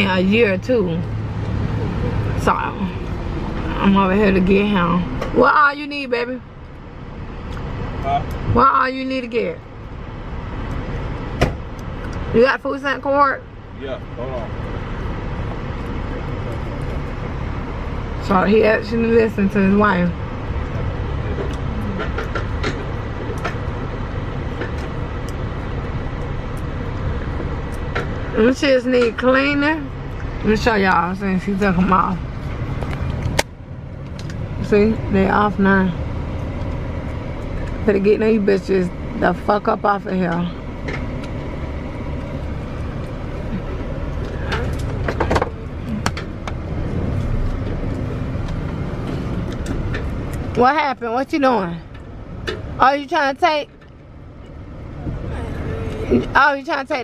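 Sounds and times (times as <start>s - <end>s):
car cabin low rumble: 0.0s - 57.0s
sharp clicks and knocks: 21.3s - 25.4s, 44.2s - 50.6s.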